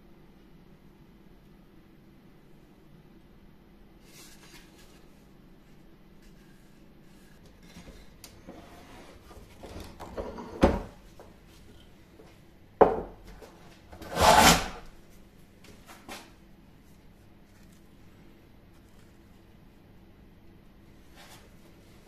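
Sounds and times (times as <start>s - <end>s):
hand plane shaving wood: 14.0s - 14.8s.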